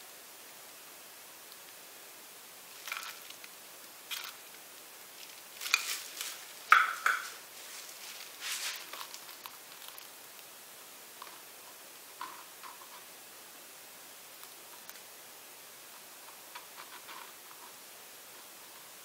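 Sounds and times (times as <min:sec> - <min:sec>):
plastic glove crinkling: 0:02.7 - 0:10.6.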